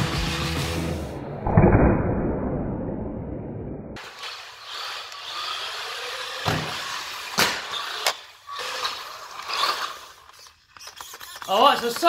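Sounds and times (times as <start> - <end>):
rc car motor whining: 4.0 - 12.0.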